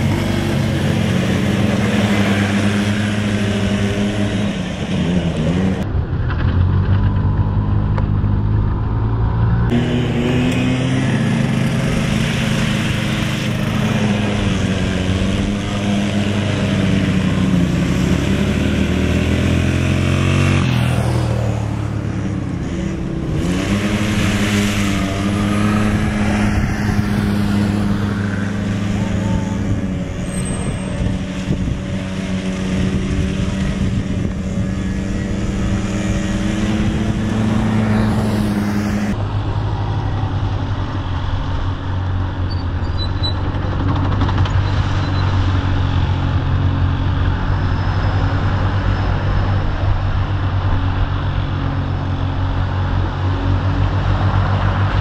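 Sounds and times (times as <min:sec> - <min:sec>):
small atv engines revving: 0:00.0 - 0:05.9, 0:09.7 - 0:39.2.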